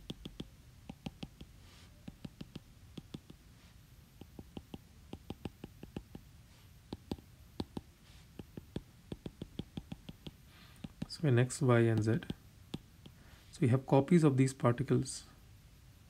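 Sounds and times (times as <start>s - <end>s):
stylus tapping on glass screen: 0.0s - 3.4s, 4.2s - 6.2s, 6.9s - 11.2s, 11.9s - 13.2s.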